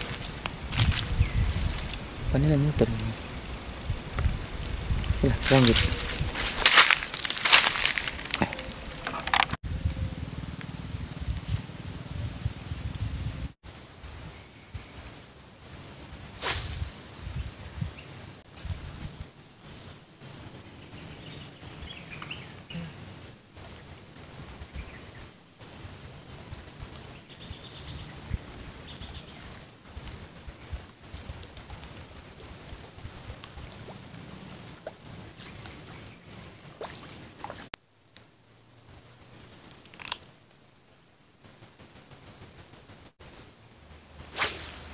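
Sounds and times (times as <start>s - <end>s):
insect chirping: 0.0s - 44.9s.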